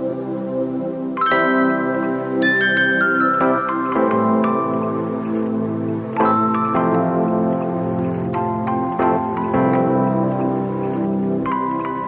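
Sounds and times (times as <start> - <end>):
soft sustained chord: 0.0 - 12.0
bell-like mallet notes: 1.2 - 5.0.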